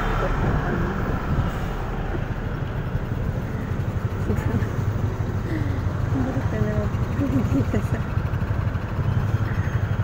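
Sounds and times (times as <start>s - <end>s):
street traffic: 0.0s - 10.0s
scooter engine running: 2.2s - 10.0s.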